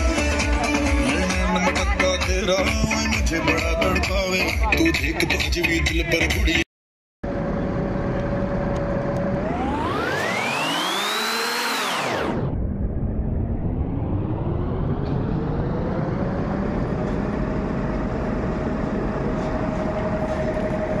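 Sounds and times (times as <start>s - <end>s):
low rising tone: 7.3s - 21.0s
electronic whistling tone sweep: 9.4s - 16.1s.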